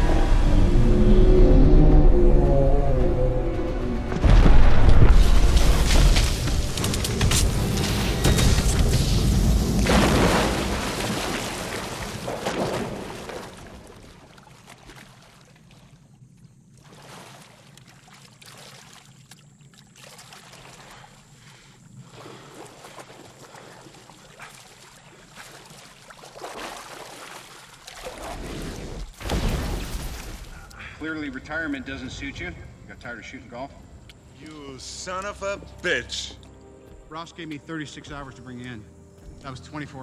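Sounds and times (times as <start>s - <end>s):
explosion rumble: 0.0s - 11.2s
water sloshing and trickling: 4.2s - 30.7s, 33.1s - 40.0s
body splashing into water: 8.7s - 16.1s, 16.7s - 21.4s, 22.0s - 30.6s.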